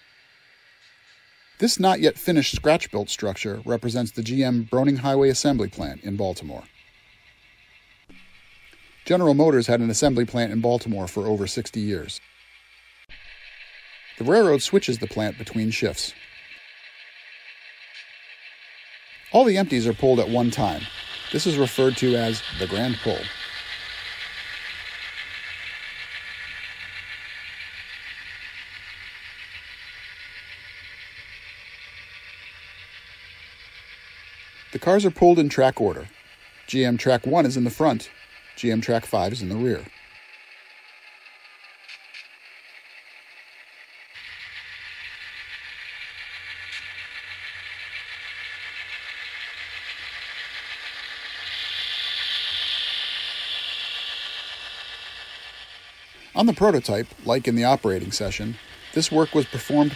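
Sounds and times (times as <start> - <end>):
model locomotive diesel engine sound: 0.0 - 59.9.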